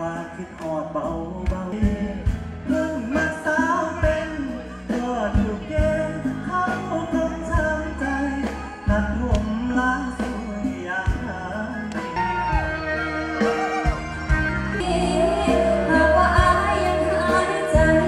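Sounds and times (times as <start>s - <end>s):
man singing into microphone: 0.0s - 12.8s
amplified band music: 0.0s - 18.0s.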